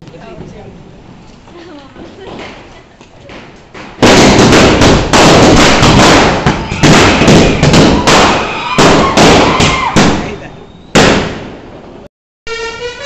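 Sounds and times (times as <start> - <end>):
firecrackers bursting: 2.0 - 12.0.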